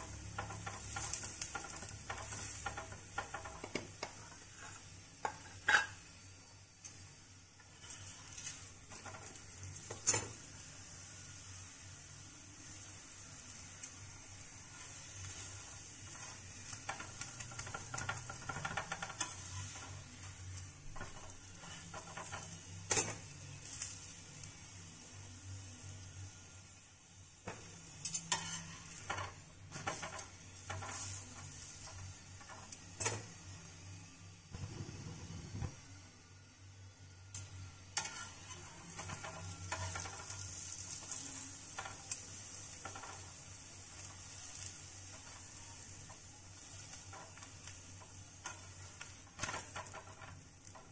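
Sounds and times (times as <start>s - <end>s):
metal spatula scraping griddle: 0.0s - 6.2s, 7.6s - 10.8s, 13.9s - 24.2s, 27.4s - 33.3s, 37.9s - 50.9s
bread sizzling on griddle: 0.0s - 50.9s.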